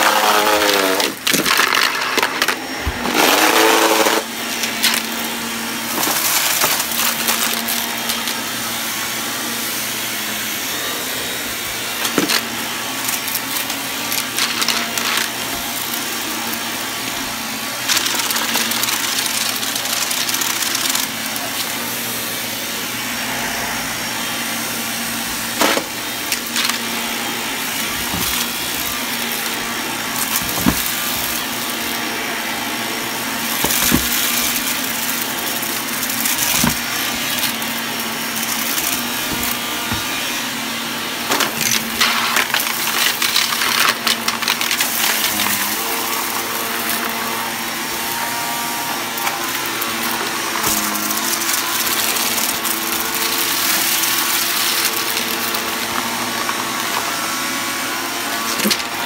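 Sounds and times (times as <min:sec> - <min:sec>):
vacuum cleaner running over carpet: 0:00.0 - 0:59.0.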